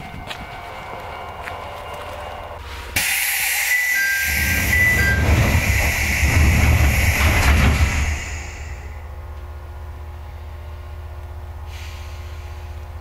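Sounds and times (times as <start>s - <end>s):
train rumbling: 0.0s - 13.0s
loud air hiss: 3.0s - 9.0s, 11.6s - 12.8s.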